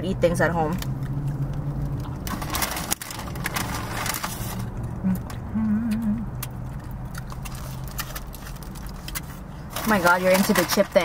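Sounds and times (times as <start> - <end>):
low steady car cabin hum: 0.0 - 11.0
chewing crunchy food: 0.8 - 9.5
person humming mmm: 5.0 - 6.4.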